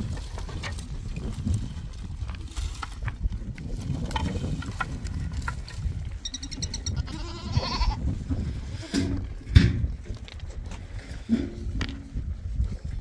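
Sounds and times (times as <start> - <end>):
goat bleating: 6.8 - 8.0.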